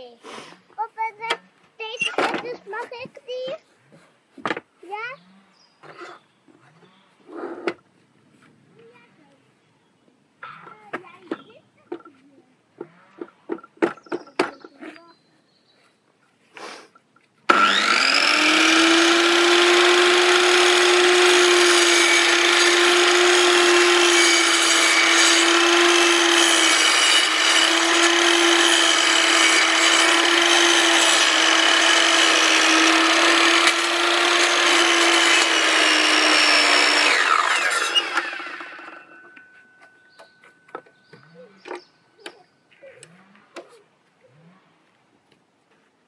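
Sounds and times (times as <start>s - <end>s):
mitre saw cutting wood: 17.5s - 39.6s.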